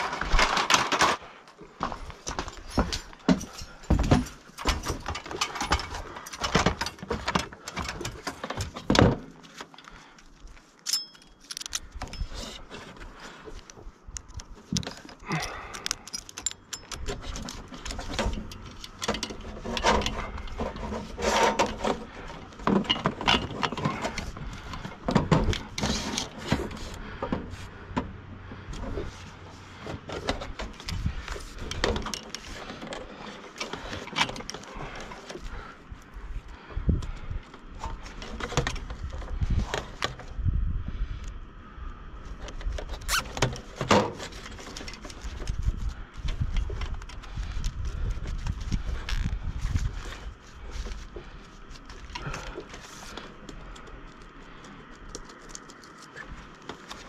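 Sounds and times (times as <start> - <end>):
climbing aluminium ladder: 0.0 - 40.3, 42.4 - 57.0
knocks and clanks on metal: 1.8 - 9.5
person breathing close: 15.0 - 17.0, 47.2 - 55.2.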